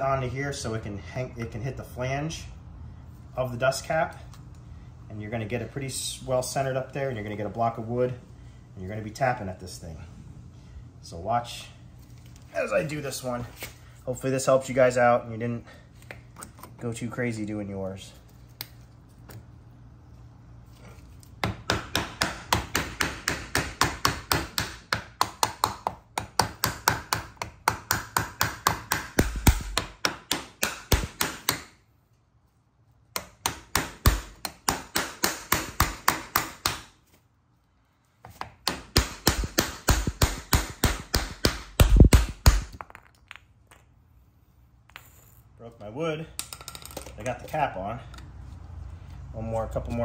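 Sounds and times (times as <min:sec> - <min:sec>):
hammer tapping on wood block: 0:21.4 - 0:31.7.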